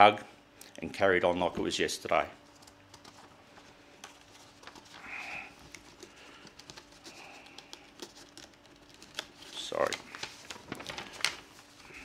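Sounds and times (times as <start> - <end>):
faint room hum: 0.0 - 12.0
paper rustling: 2.4 - 12.0.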